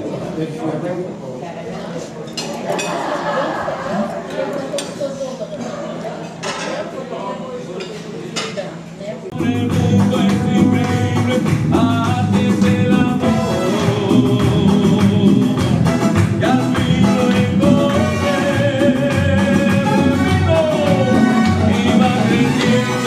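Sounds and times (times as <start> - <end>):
person singing over a beat: 9.4 - 23.0.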